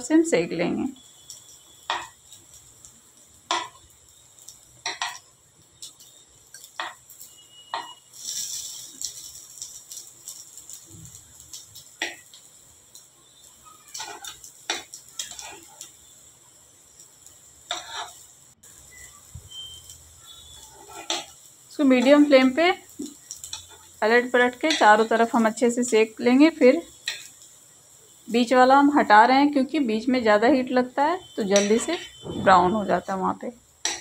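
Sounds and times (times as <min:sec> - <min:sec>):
faint oil sizzle: 0:00.0 - 0:34.0
metal spoon scraping pan: 0:13.9 - 0:15.9, 0:17.7 - 0:18.2, 0:20.5 - 0:22.6, 0:23.4 - 0:23.9, 0:24.6 - 0:25.1, 0:31.4 - 0:32.6.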